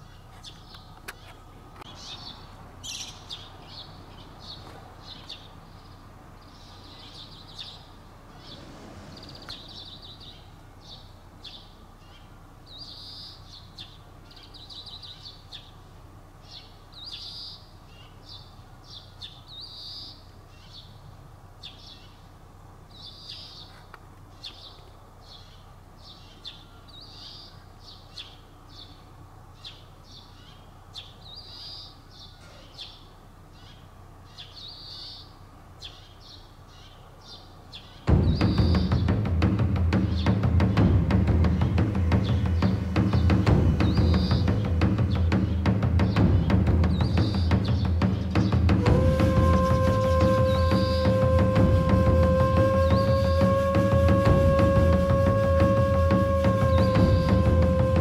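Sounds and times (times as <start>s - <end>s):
small birds chirping: 0.0s - 53.4s.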